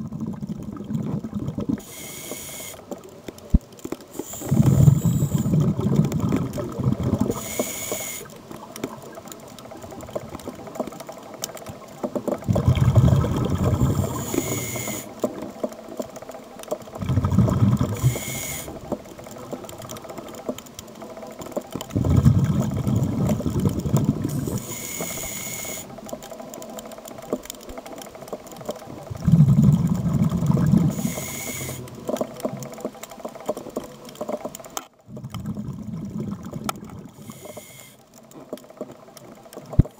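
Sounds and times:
bubbling regulator exhalations: 0.0 - 2.7, 4.2 - 8.3, 12.3 - 15.1, 16.9 - 19.0, 21.9 - 25.9, 29.0 - 32.2, 35.0 - 37.8
faint steady crackle: 0.0 - 39.9
hissing regulator inhalations: 1.8 - 2.9, 4.1 - 5.8, 7.2 - 8.4, 13.7 - 15.2, 17.9 - 19.0, 24.2 - 26.0, 30.8 - 31.9, 37.1 - 38.1.

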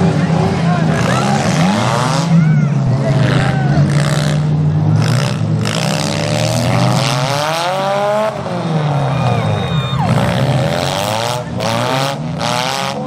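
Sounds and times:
car engines revving: 0.0 - 13.0.

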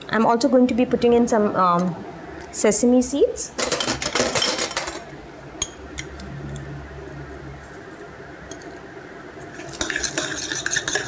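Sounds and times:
low steady hum: 0.0 - 11.0
metal spoon clinking dishes: 3.6 - 5.8, 9.7 - 11.0.

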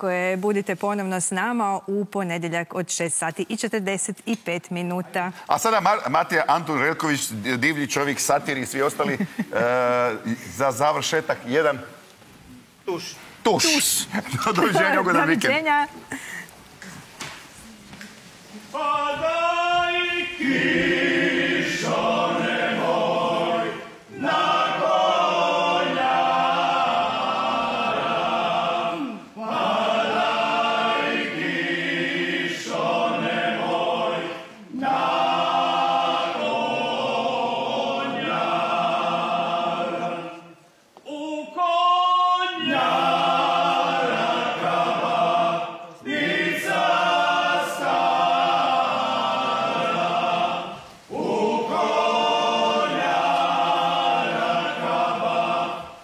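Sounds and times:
men singing folk song together: 18.7 - 28.9, 29.6 - 56.0.

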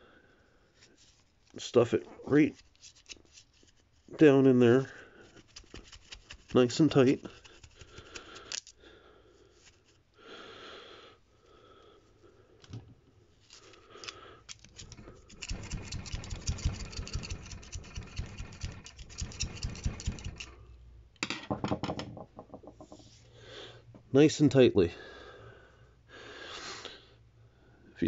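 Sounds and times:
metal scraping on metal: 14.5 - 20.6.

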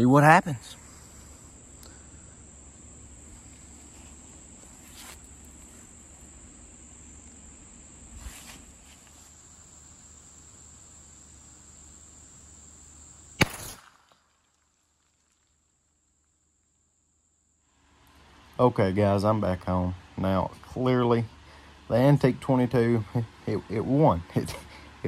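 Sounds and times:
high-pitched insect drone: 0.0 - 14.2
rifle shot crack: 13.4 - 14.3.

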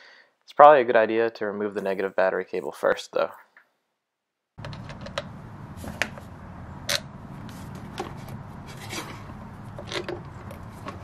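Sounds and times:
steady low hum: 4.6 - 11.0.

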